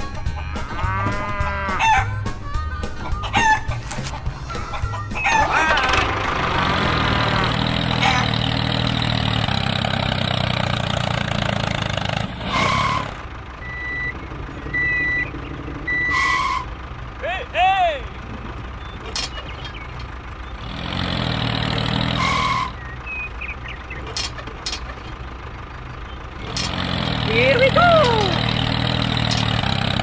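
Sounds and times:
chickens clucking: 0.0 - 8.7, 18.2 - 21.0, 21.8 - 28.5
rooster crowing: 0.7 - 2.1.

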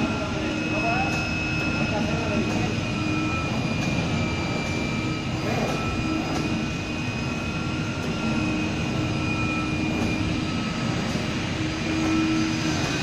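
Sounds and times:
cutting machine droning and whining: 0.0 - 13.0.

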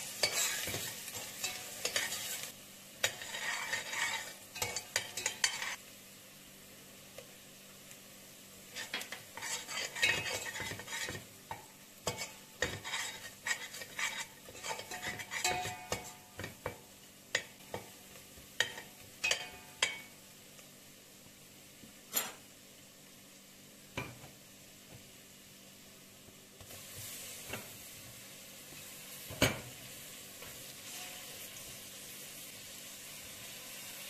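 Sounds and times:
metal spoon stirring and scraping pot: 0.0 - 5.8, 8.7 - 17.9, 18.6 - 20.1
quiet sizzle: 0.0 - 34.0.

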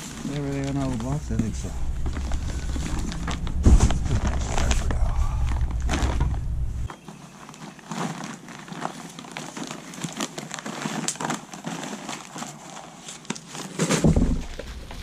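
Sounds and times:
packing paper crinkling: 0.0 - 15.0
low bump: 0.4 - 6.9, 14.0 - 15.0.

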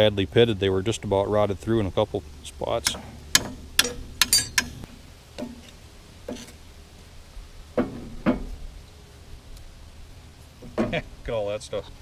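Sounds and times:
metal knocks and clunks: 2.8 - 6.5, 7.8 - 8.6, 10.6 - 11.1.

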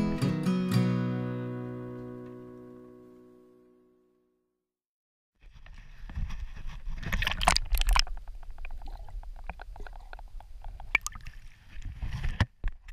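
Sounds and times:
small clicks underwater: 7.0 - 12.9.

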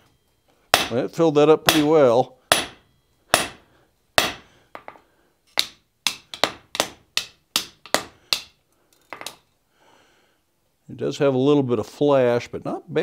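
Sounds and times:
hammer striking hot steel: 0.7 - 1.0, 1.6 - 9.4.

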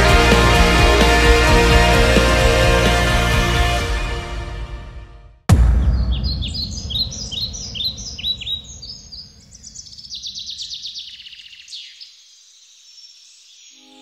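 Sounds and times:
deep hit with low rumble: 5.5 - 9.6
bird trill: 5.8 - 12.2
birds chirping: 5.8 - 14.0.

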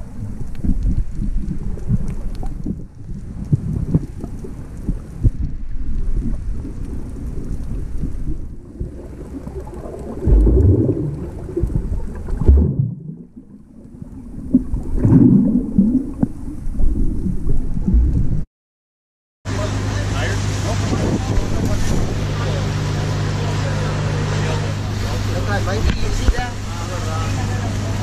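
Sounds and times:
bubbling from swimmers' kicks: 0.0 - 18.4
underwater rumbling and churning: 0.0 - 18.5, 19.8 - 28.0.

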